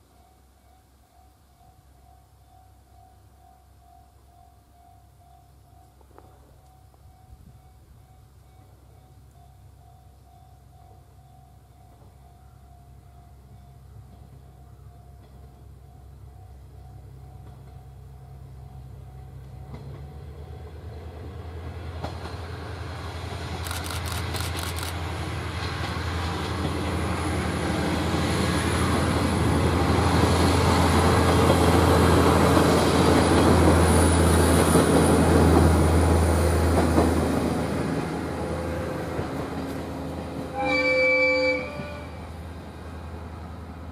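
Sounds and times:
diesel train engine drone: 0.0s - 43.9s
train horn blast: 40.4s - 42.5s.

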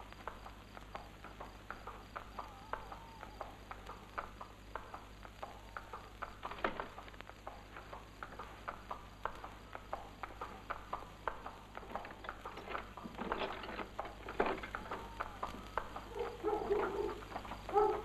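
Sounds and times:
horse hooves on hard ground: 0.0s - 18.0s
short pitched calls: 1.3s - 11.8s, 14.6s - 18.0s.

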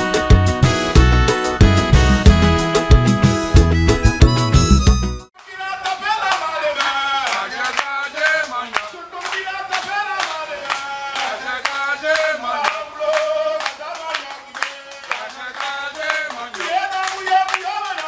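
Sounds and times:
crowd clapping along: 0.0s - 18.0s
man singing into microphone: 5.4s - 18.0s.

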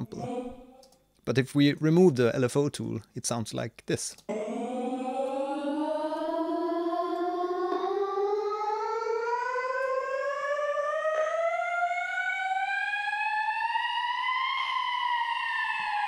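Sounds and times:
rising vocal drone: 0.0s - 0.8s, 4.3s - 16.0s.

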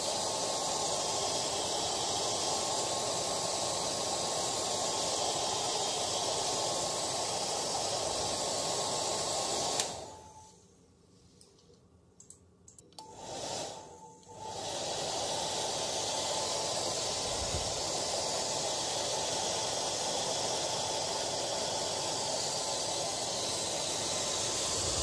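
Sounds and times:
hair dryer blowing: 0.0s - 10.4s, 13.0s - 25.0s.

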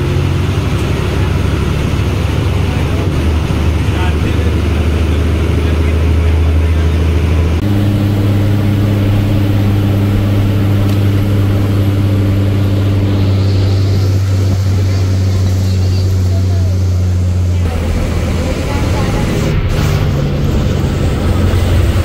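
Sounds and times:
vehicle engine droning: 0.0s - 22.0s.

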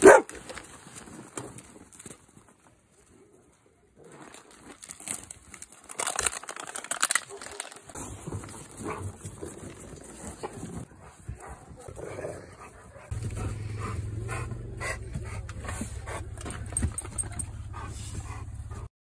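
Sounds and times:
dogs panting: 8.0s - 18.9s
steady low rumble: 11.3s - 18.9s.

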